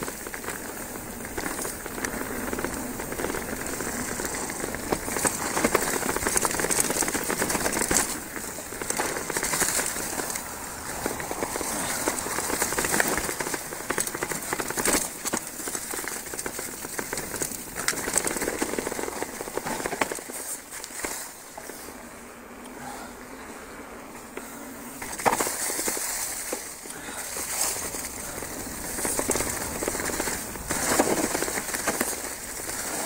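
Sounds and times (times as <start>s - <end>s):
bike rattling: 0.0s - 33.0s
bike tyres crackling over leaves: 0.0s - 33.0s.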